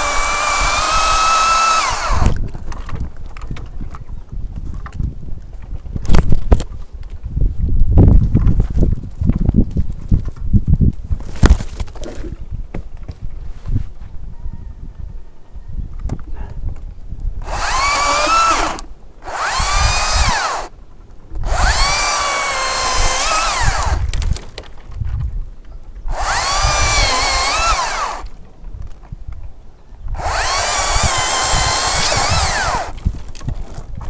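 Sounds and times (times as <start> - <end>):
electric chainsaw cutting branches: 0.0 - 2.4, 17.4 - 20.7, 21.4 - 24.4, 26.1 - 28.4, 30.2 - 33.5.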